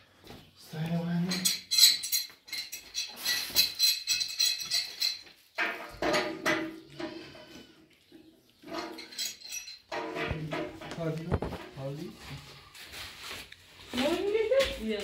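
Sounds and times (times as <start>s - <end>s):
hand tool clinking on metal: 1.2s - 7.3s, 8.7s - 10.7s.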